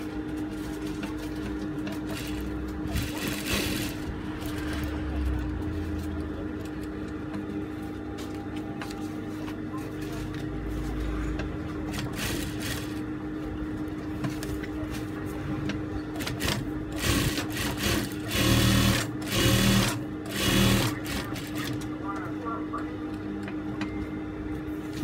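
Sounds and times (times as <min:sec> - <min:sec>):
sewing machine stitching: 0:02.1 - 0:04.9, 0:16.2 - 0:21.8.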